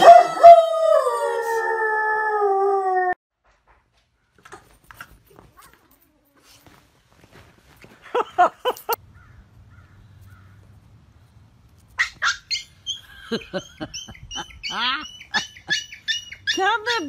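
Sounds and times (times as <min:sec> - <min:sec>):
pets crying and squealing: 0:12.0 - 0:17.0.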